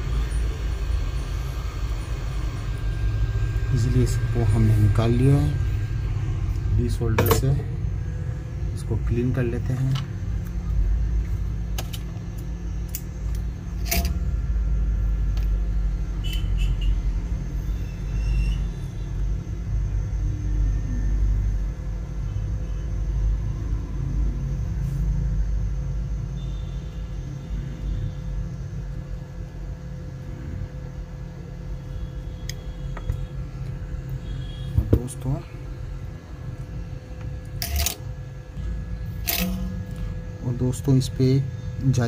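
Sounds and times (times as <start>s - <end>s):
low machine rumble: 0.0s - 42.0s
sharp tool clicks: 39.2s - 40.0s.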